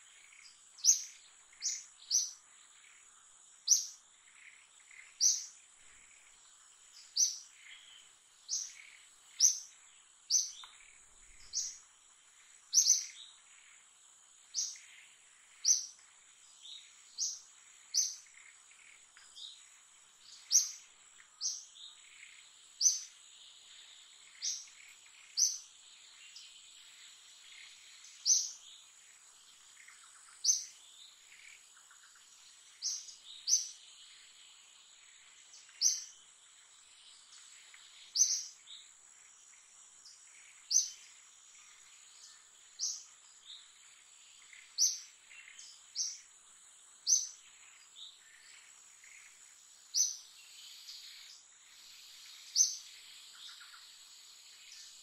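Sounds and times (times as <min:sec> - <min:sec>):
high insect drone: 0:00.0 - 0:55.0.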